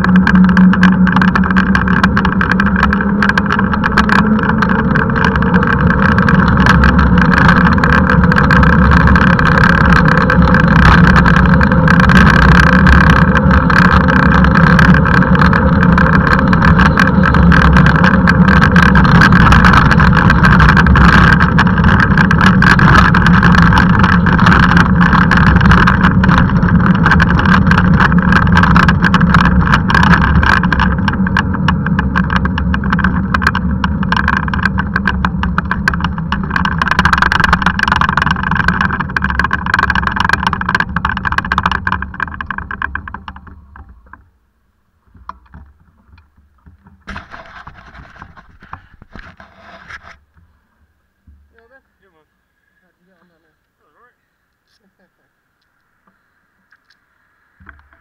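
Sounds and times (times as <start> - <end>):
wind noise: 0.0 - 44.3
small clicks and rattles: 0.0 - 44.4, 45.0 - 52.2, 55.6 - 58.0
tyre noise on tarmac road: 0.0 - 58.0.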